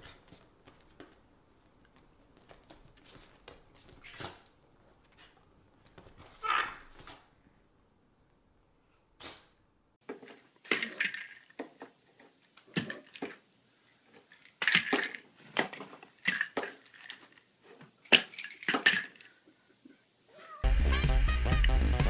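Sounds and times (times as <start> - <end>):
pill bottles rattling on wood: 10.1 - 12.0, 14.1 - 19.4.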